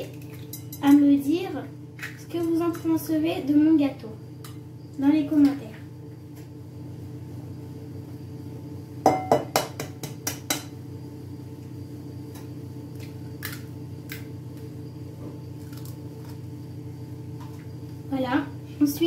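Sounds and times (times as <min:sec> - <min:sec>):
eggs knocking on metal bowl: 0:09.0 - 0:10.8.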